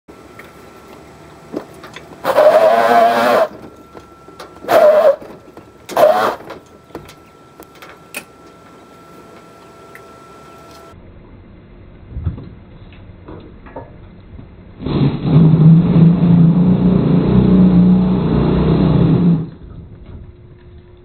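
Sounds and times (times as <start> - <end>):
tire squealing on concrete: 2.2 - 3.6, 4.6 - 5.3, 5.9 - 6.5, 14.8 - 19.6.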